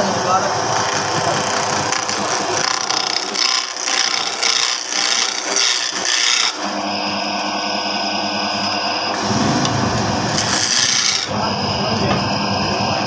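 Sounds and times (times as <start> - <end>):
chisel scraping wood on lathe: 0.7 - 6.7, 10.3 - 11.4
low hum: 6.7 - 10.4.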